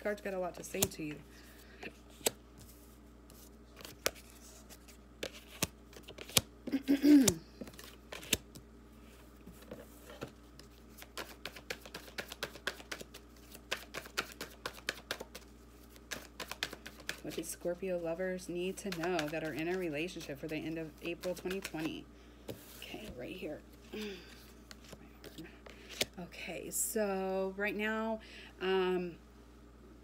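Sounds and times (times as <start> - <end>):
playing cards being shuffled: 1.9 - 8.6, 9.5 - 17.5, 18.8 - 23.2, 23.8 - 26.2.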